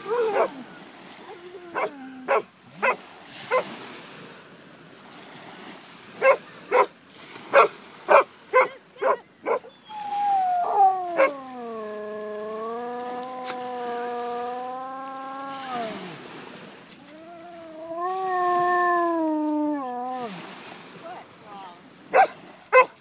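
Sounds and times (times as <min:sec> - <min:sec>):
dog baying howl: 0:00.0 - 0:00.6, 0:01.4 - 0:03.6, 0:07.6 - 0:16.1, 0:17.1 - 0:20.5
dog barking: 0:00.3 - 0:00.5, 0:01.8 - 0:03.7, 0:06.2 - 0:06.9, 0:07.5 - 0:09.7, 0:11.2 - 0:11.4, 0:22.1 - 0:23.0.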